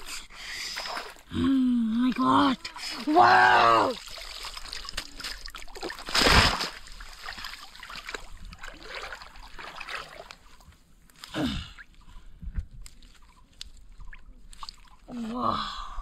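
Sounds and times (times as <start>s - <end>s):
muddy water splashing: 0.0s - 12.1s, 12.8s - 15.6s
loud splash: 3.0s - 10.1s.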